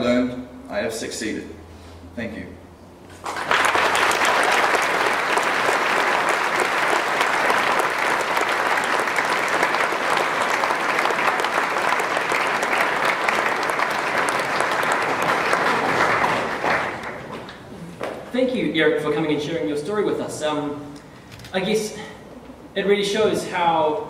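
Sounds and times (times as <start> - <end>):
audience clapping: 3.1 - 18.2.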